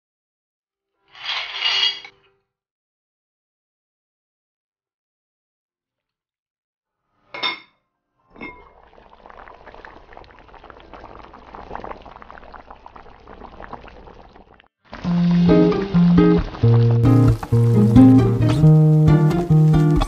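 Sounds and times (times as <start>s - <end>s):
noodles sizzling: 8.7s - 20.0s.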